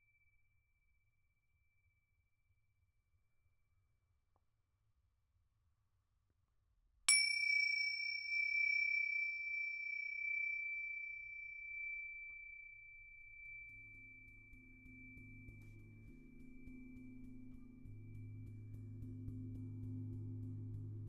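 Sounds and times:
high-pitched metal chime ringing: 7.1 - 18.8
low humming tones: 13.4 - 21.0.

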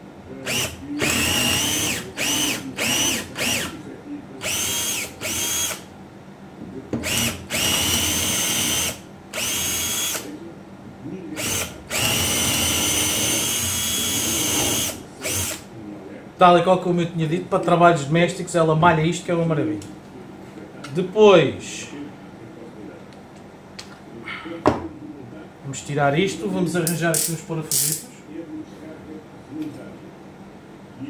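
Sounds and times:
cordless drill whining: 0.5 - 3.8, 4.4 - 5.8, 7.0 - 10.3, 11.4 - 15.6.

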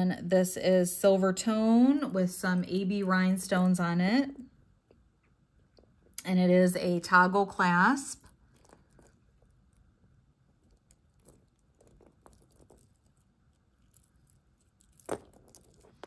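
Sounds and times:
metal bracelet clicking and rattling: 8.2 - 9.8, 10.6 - 16.0.

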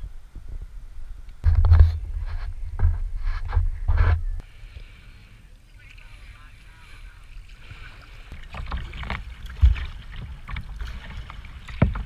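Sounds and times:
paddle strokes splashing water: 4.5 - 12.0.

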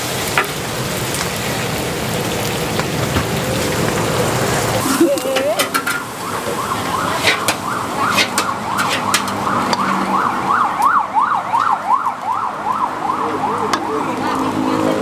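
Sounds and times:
siren yelping: 4.8 - 14.7.

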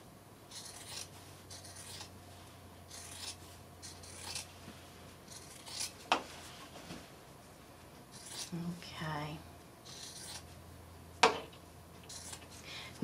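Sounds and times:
scissors cutting fabric: 0.5 - 2.1, 2.9 - 4.5, 5.3 - 6.0, 8.1 - 8.5, 9.9 - 10.5, 12.1 - 12.6.

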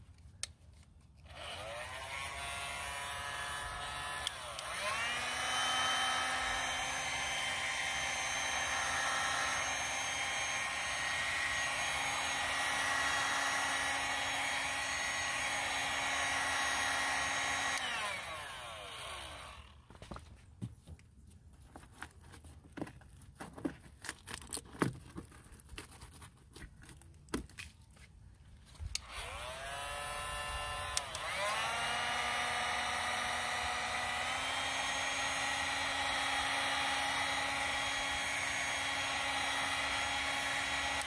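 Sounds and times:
heat gun fan whining: 1.2 - 19.9, 28.8 - 41.0.

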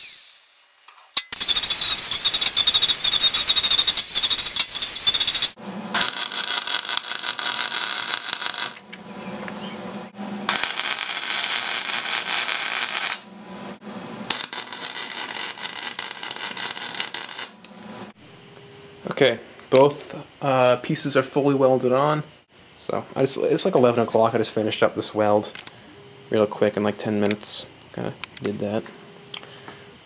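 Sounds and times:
angle grinder grinding steel: 0.0 - 0.6, 1.3 - 8.8
welder crackling and buzzing: 1.3 - 9.6, 10.4 - 18.2.

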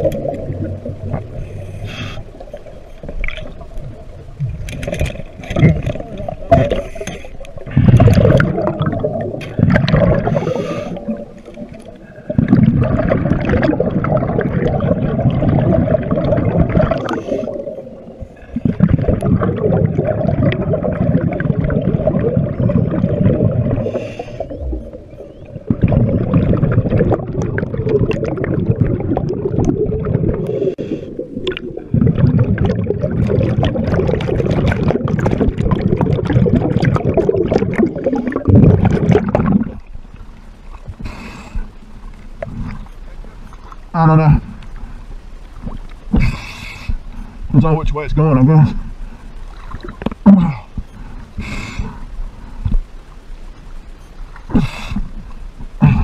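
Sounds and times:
underwater bubbling gurgle: 0.0 - 56.0.

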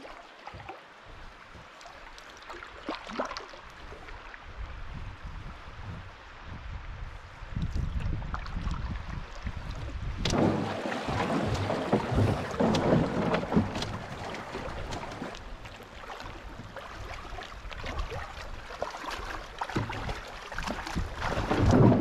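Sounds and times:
splashing of person wading: 1.6 - 4.3, 8.3 - 22.0
wind buffeting microphone: 3.9 - 18.7
irregular knocks: 10.3 - 15.3
river water rushing: 10.3 - 22.0.

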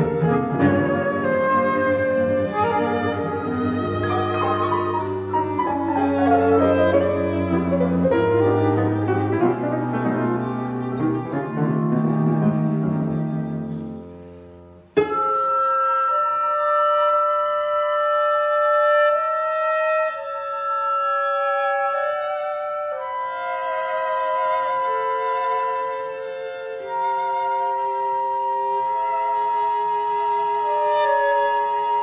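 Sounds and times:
plucked cello accent: 0.0 - 17.1
chamber ensemble playing: 0.0 - 32.0.

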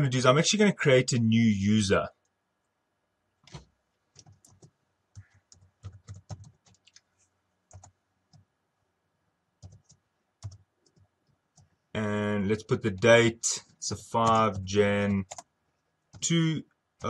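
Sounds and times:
typing on computer keyboard: 3.4 - 7.1, 7.7 - 8.4, 9.6 - 11.7, 14.2 - 15.5.

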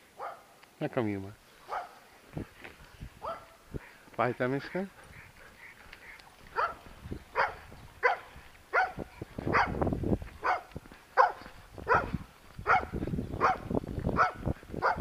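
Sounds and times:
dog yelping: 5.0 - 9.8, 10.4 - 13.6, 14.2 - 15.0.

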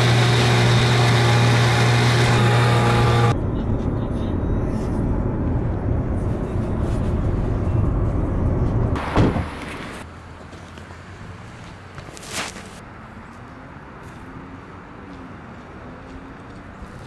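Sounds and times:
outboard motor drone: 0.0 - 3.4
road rumble inside car: 3.3 - 10.1.

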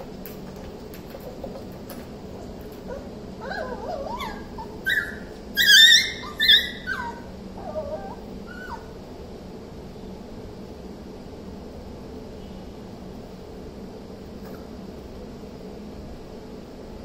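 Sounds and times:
puppy whining and yipping: 2.8 - 9.0.

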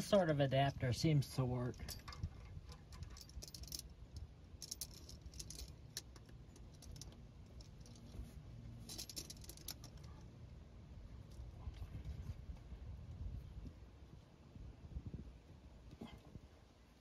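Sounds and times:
ratchet clicking and rattling: 1.8 - 8.0, 8.9 - 10.1.

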